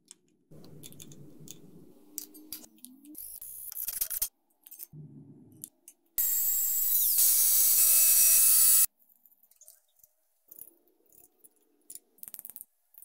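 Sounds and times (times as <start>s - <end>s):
power tool whining on metal: 6.2s - 8.9s.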